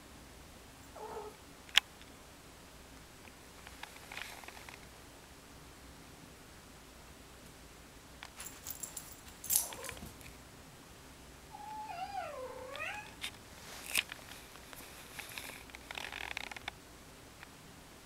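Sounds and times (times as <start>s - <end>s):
rustles: 3.2s - 5.0s, 8.2s - 10.4s, 12.6s - 16.8s
kitten meowing: 11.6s - 13.2s.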